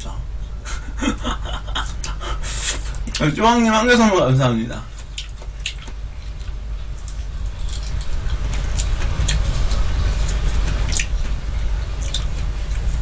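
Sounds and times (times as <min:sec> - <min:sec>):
steady low hum: 0:00.0 - 0:13.0
wet chewing and smacking: 0:05.0 - 0:11.4, 0:12.0 - 0:13.0.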